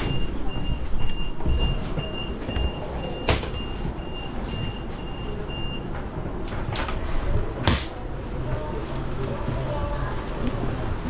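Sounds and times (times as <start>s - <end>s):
door warning beeper: 0.0s - 6.0s.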